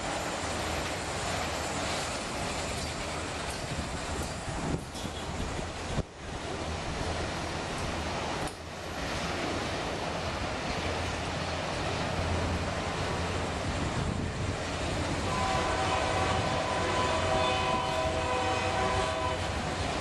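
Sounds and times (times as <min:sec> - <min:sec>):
railcar wheels rumbling on rails: 0:00.0 - 0:20.0.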